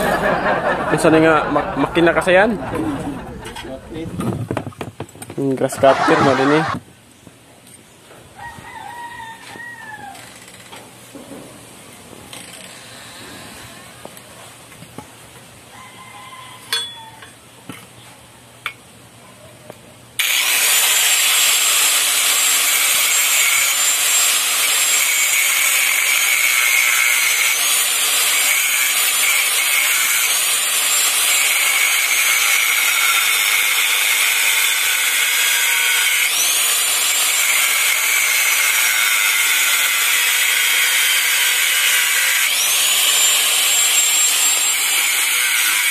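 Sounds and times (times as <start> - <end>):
disc power tool grinding metal: 5.7 - 6.8, 20.2 - 45.9.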